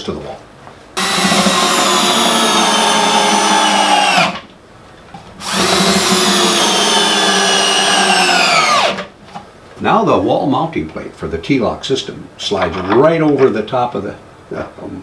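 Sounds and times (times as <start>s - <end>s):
cordless drill whining: 1.0s - 4.4s, 5.4s - 9.1s.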